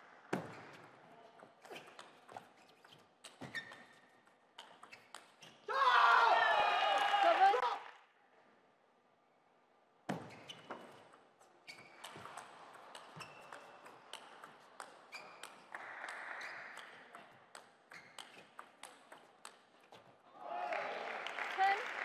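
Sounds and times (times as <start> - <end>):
table tennis ball hitting paddles: 11.8 - 20.1.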